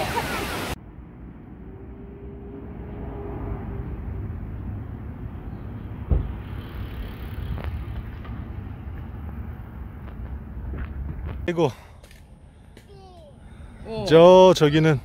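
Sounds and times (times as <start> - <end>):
sharp thump: 6.0 - 6.4.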